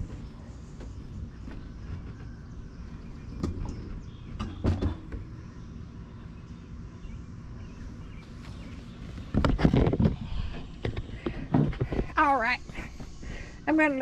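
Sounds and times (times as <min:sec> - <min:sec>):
steady low rumble: 0:05.1 - 0:14.0.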